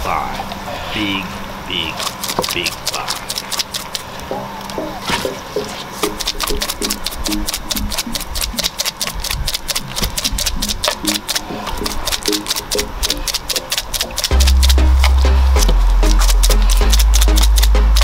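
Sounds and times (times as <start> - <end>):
fast ticking beat: 2.0 - 18.0
low stepping melody: 4.1 - 18.0.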